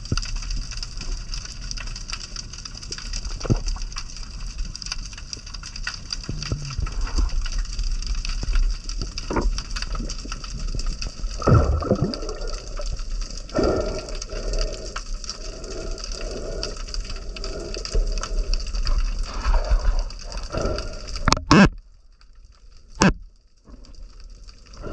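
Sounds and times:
low water rumble: 0:00.0 - 0:24.9
underwater crackle of clicks: 0:00.0 - 0:24.9
muffled water whooshes: 0:11.4 - 0:12.8.

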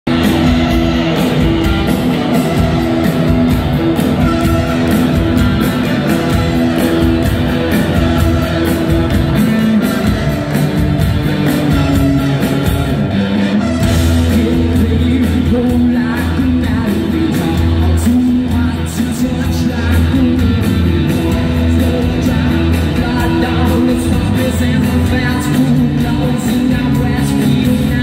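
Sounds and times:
drum beat: 0:00.1 - 0:13.1
electric guitar riffing: 0:00.1 - 0:28.0.

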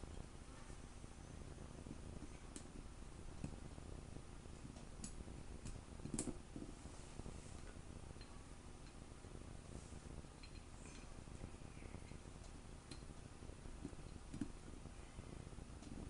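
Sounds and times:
faint metal clicks and taps: 0:10.4 - 0:11.4, 0:12.0 - 0:13.2, 0:13.8 - 0:14.6.

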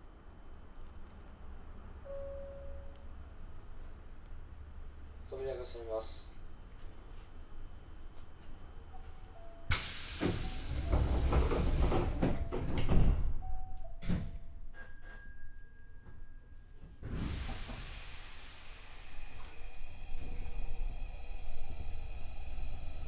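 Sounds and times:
compressed air hiss: 0:09.7 - 0:12.4, 0:17.2 - 0:19.4
train doors knocking shut: 0:09.7 - 0:14.4.

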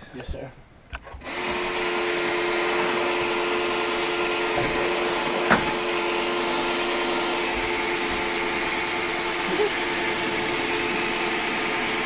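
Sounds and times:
electric motor humming: 0:01.2 - 0:12.0.

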